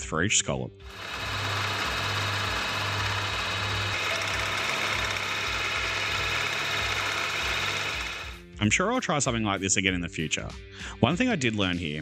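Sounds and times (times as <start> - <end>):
end mill cutting metal: 0.9 - 8.4
spindle hum: 0.9 - 8.4.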